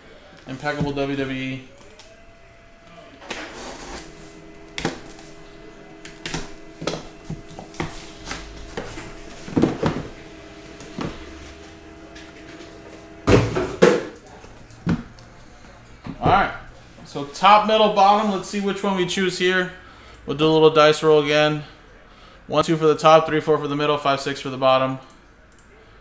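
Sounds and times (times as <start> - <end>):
cardboard boxes knocking and rustling: 6.2 - 10.2, 13.2 - 14.1.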